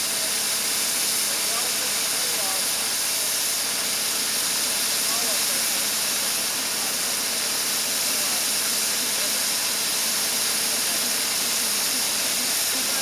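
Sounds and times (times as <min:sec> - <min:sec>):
locomotive hissing steam: 0:00.0 - 0:13.0.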